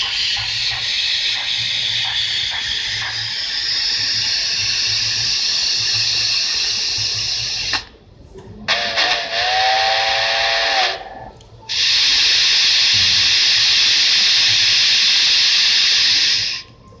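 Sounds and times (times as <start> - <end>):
steam hissing: 0.0 - 8.0, 8.7 - 16.7
steam whistle: 8.7 - 16.7.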